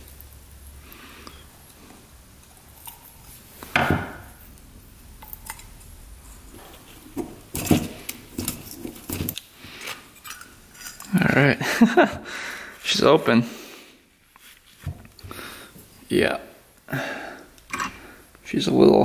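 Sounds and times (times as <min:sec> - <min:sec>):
metal clinks knocks and scrapes: 0:17.7 - 0:18.0.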